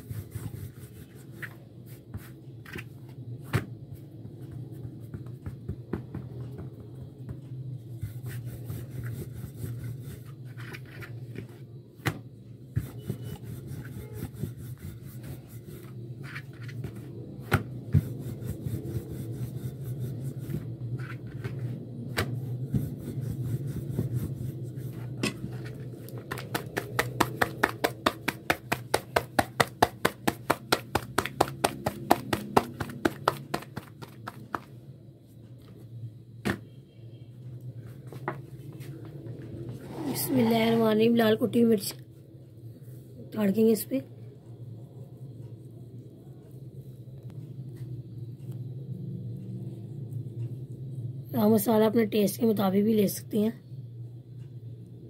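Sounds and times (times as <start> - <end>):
hands rubbing dough: 0.0 - 11.6, 12.6 - 34.8
hands patting dough: 0.0 - 34.9
steady low hum: 0.0 - 55.0.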